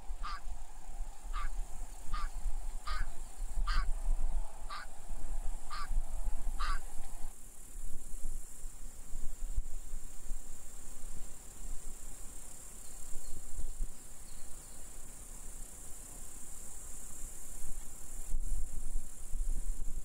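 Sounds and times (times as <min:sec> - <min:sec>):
geese honking: 0:00.2 - 0:00.5, 0:01.3 - 0:03.9, 0:04.7 - 0:04.9, 0:05.7 - 0:06.0, 0:06.6 - 0:07.0.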